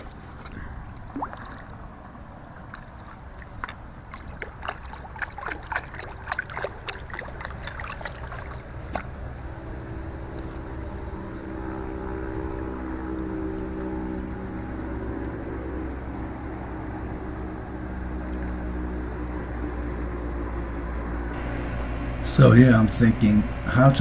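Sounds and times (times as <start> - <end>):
water splashing and dripping: 0.0 - 9.2
low rumble: 21.4 - 24.0.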